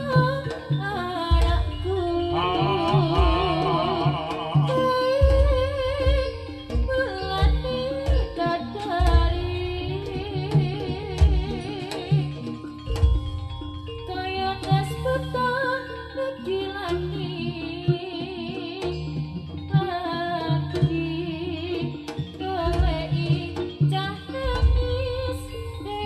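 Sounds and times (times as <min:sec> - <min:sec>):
drum strokes: 0:00.0 - 0:15.0, 0:22.1 - 0:26.0
held metallophone tones: 0:00.0 - 0:26.0
ornamented lead melody: 0:00.0 - 0:26.0.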